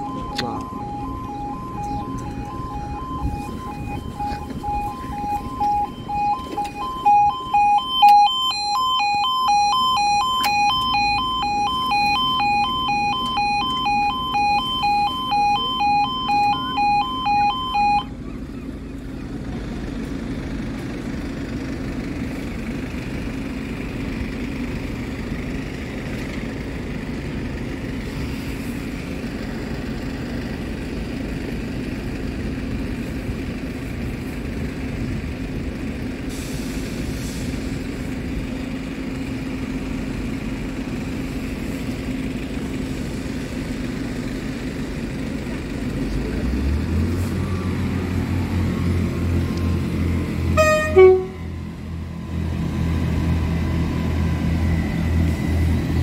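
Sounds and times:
higher-pitched alarm: 0.0s - 18.2s, 50.6s - 51.7s
level crossing alarm pulsing: 0.0s - 18.2s, 50.0s - 56.0s
low engine hum: 0.0s - 56.0s.

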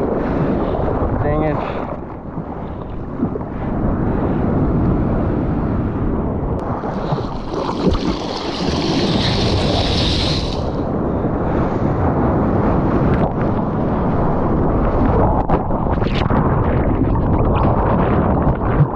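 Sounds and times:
sea water sloshing and splashing: 0.0s - 4.0s, 6.6s - 10.9s
wind buffeting microphone: 0.0s - 18.9s
hissing rush of water: 7.3s - 10.8s.

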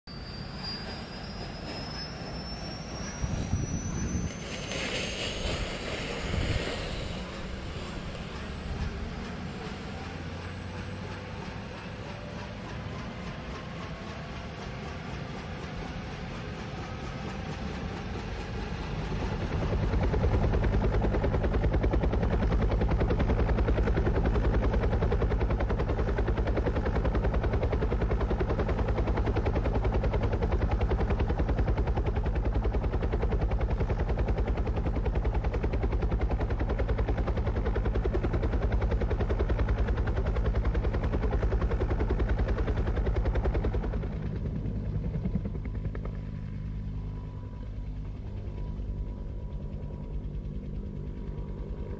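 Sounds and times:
wind buffeting microphone: 3.1s - 9.4s.

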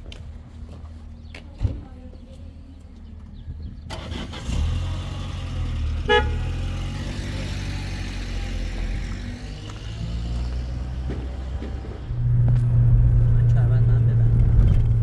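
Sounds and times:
car engine pulling away: 3.9s - 15.0s
car horn toot: 6.0s - 6.6s.

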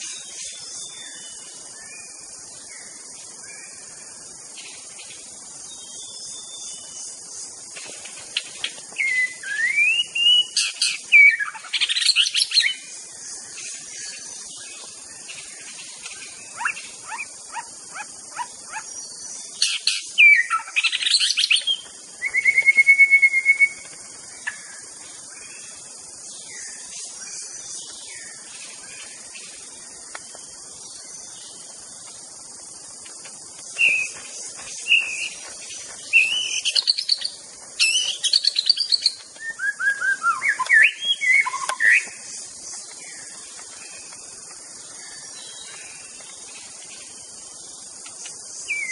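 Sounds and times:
high-pitched hiss: 0.0s - 48.9s
songbird whistling and trilling: 9.0s - 12.8s, 19.6s - 23.9s, 33.8s - 34.2s, 34.8s - 35.5s, 36.1s - 42.2s, 48.7s - 48.9s.

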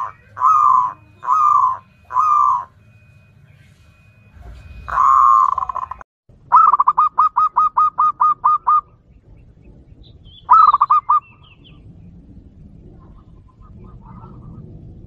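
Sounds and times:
dove cooing staccato notes: 0.0s - 2.8s, 4.4s - 9.0s, 10.4s - 11.4s.

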